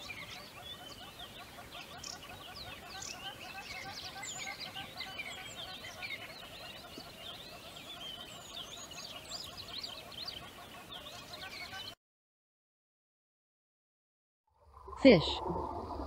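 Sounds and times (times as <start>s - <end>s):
birds chirping and twittering: 0.0s - 12.0s.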